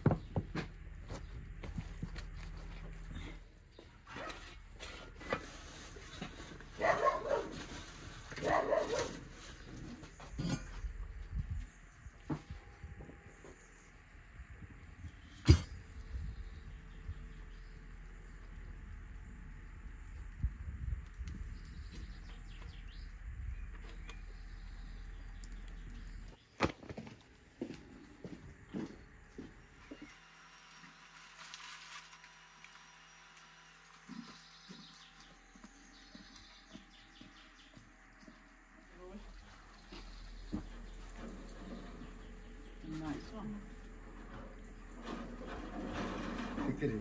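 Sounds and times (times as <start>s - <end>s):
dog barking: 6.8s - 7.6s, 8.4s - 9.2s
steady low rumble: 10.6s - 26.4s.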